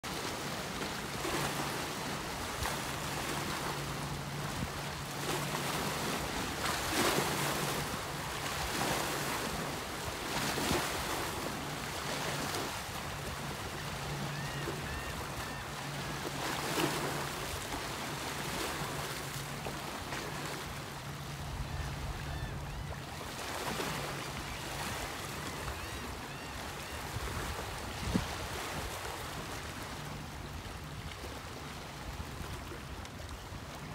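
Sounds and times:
wind on microphone: 27.2s - 29.0s.

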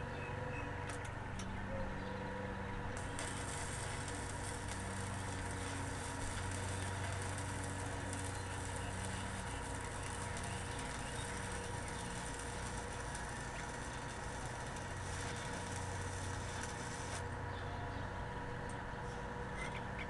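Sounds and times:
welding arc crackling hiss: 3.0s - 17.4s.

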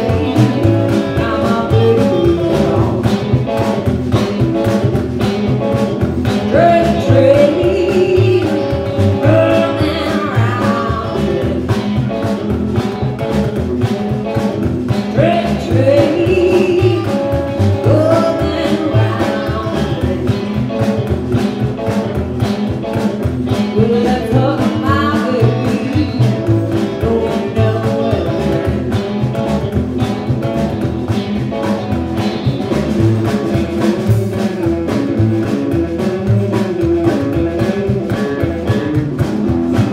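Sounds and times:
woman singing: 0.0s - 4.8s, 6.3s - 12.2s, 15.0s - 20.9s, 23.5s - 29.0s
drum kit steady beat: 0.0s - 39.9s
electric guitar: 0.0s - 39.9s
upright double bass: 0.0s - 39.9s.

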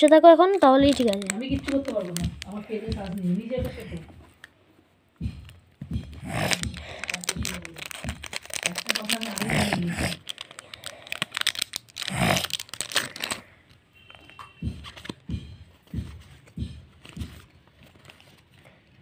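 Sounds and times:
foil wrapper crinkling and tearing: 0.0s - 3.2s, 6.2s - 13.6s
soft thumps: 5.2s - 6.8s.

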